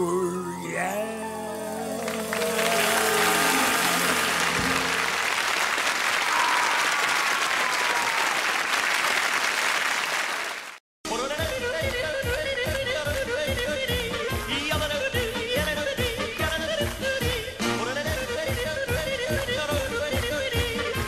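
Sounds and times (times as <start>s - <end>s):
song with singing: 0.0s - 5.2s, 11.1s - 21.0s
band playing last notes: 0.1s - 6.0s
audience applause: 1.7s - 10.8s.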